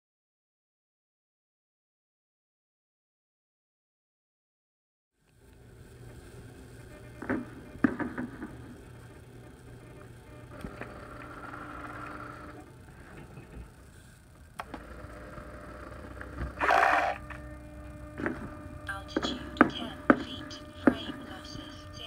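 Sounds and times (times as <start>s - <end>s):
retract motor humming: 5.2s - 22.0s.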